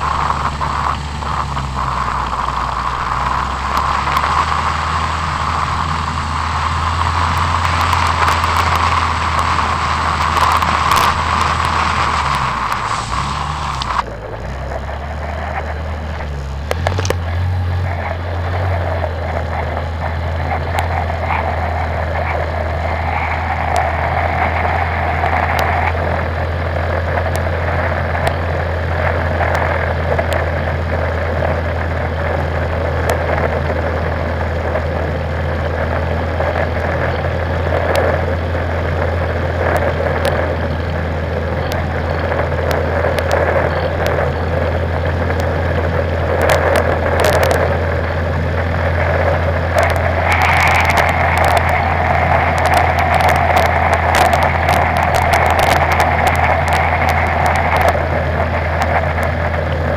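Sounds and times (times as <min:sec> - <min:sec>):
quad bike engine running: 0:00.0 - 0:59.9.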